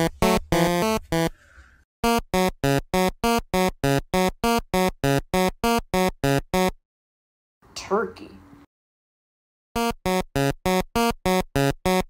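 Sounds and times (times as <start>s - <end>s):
chiptune synth notes: 0.0s - 1.3s, 2.0s - 6.8s, 9.8s - 12.0s.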